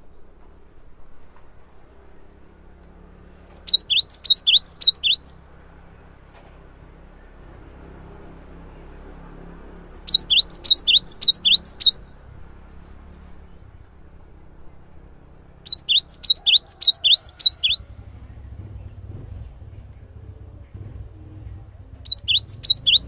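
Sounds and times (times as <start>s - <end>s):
bird singing high repeated notes: 3.5s - 5.4s, 9.9s - 12.2s, 15.4s - 17.8s, 22.0s - 23.0s.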